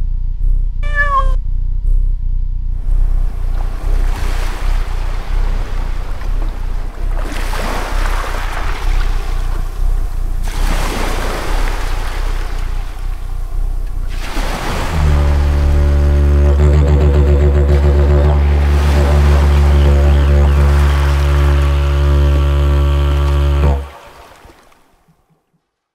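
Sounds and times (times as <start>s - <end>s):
steady low rumble: 0.0s - 21.6s
sea waves washing in: 2.8s - 16.7s, 17.5s - 25.0s.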